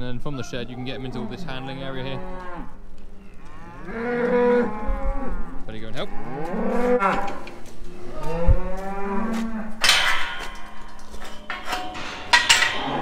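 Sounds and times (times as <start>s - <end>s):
cows mooing: 0.0s - 13.0s
metal gates clanking: 9.7s - 13.0s.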